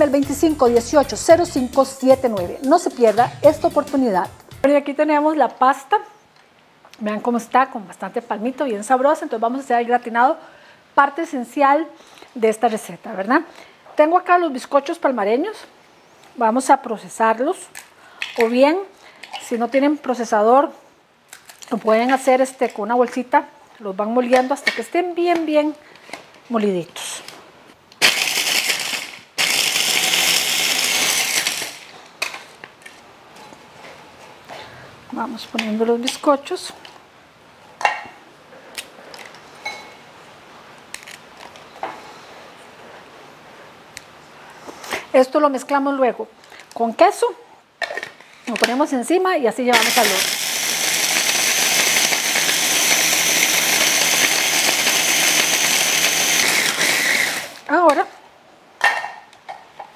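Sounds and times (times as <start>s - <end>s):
electric food chopper grinding: 28.0s - 31.8s, 49.7s - 57.7s.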